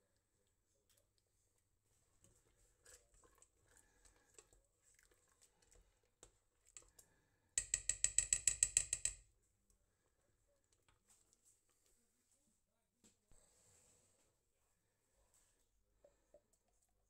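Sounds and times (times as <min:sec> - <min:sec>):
spoon stirring in a pot: 0:02.0 - 0:09.2.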